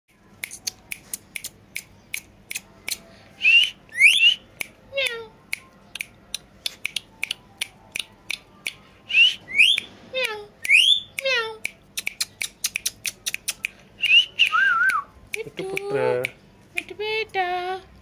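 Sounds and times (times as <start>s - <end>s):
parakeet whistling: 3.4s - 4.4s, 9.1s - 9.9s, 14.0s - 15.1s
sharp clicks: 9.6s - 16.4s.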